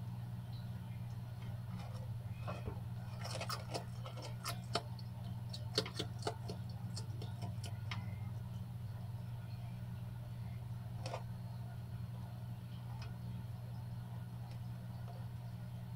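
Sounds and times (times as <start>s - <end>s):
steady low hum: 0.0s - 15.9s
lizard crunching worms: 1.7s - 8.1s.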